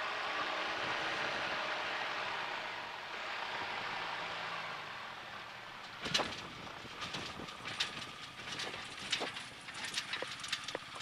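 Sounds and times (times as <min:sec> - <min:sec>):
landing gear knocking and rattling: 0:06.0 - 0:11.0.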